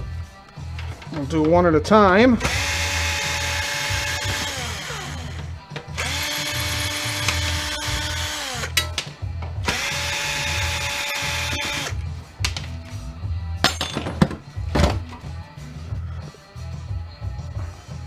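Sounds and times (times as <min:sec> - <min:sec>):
cordless drill whining: 0:02.4 - 0:08.7, 0:09.7 - 0:12.0.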